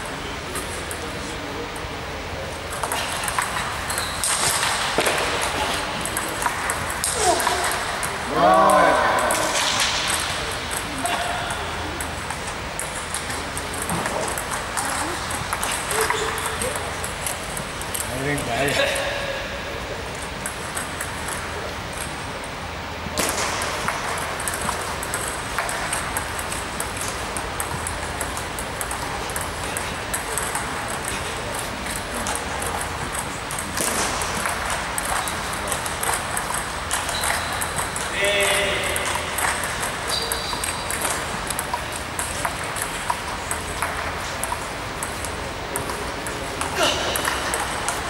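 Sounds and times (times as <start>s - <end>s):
table tennis ball taps: 23.2s - 48.0s.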